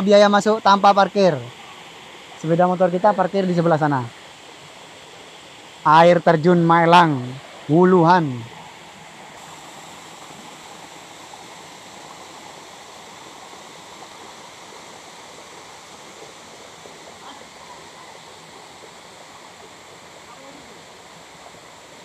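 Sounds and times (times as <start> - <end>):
stream and small waterfall: 0.0 - 22.0.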